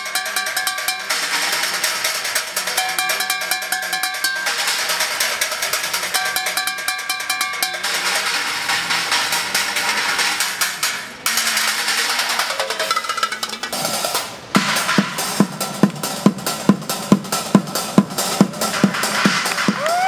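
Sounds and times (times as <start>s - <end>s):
ringing metallic tones: 0.0s - 13.8s
drumming on scrap metal: 0.0s - 19.8s.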